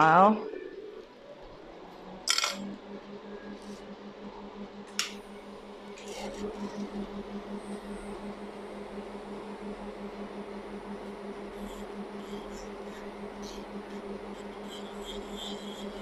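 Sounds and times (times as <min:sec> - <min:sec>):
small electric motor humming: 0:04.9 - 0:16.0
nail file bit scratching: 0:11.5 - 0:16.0.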